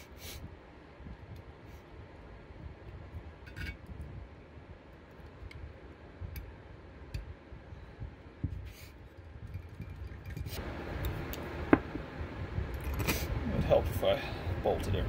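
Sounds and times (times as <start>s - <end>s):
low background rumble: 0.0s - 15.0s
noisy wash: 9.8s - 15.0s.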